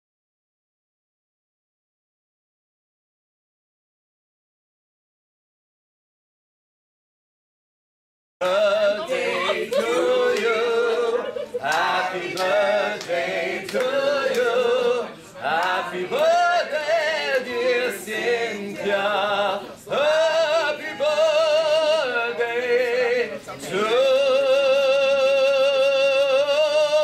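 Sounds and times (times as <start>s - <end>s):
man singing a love song: 8.4s - 27.0s.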